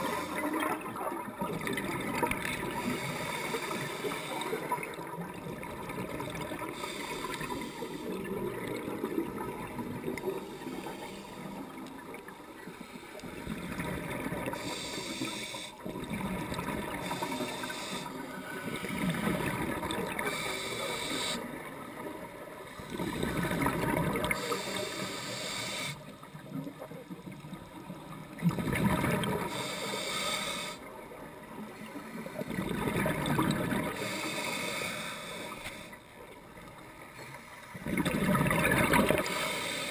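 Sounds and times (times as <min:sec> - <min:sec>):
exhaled air bubbles gurgling: 0:00.0 - 0:12.6, 0:13.4 - 0:25.0, 0:26.4 - 0:29.7, 0:32.1 - 0:34.2, 0:37.7 - 0:39.9.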